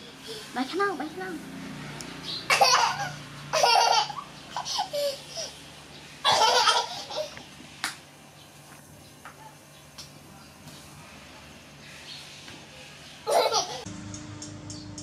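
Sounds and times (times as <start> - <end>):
young child laughing: 2.5 - 5.6, 6.2 - 7.5, 13.2 - 13.9.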